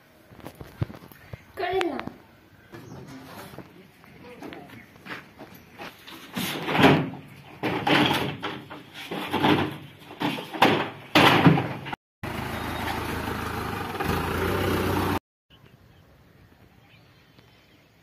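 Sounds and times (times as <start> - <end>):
plastic crates knocking on wood: 6.7 - 11.9.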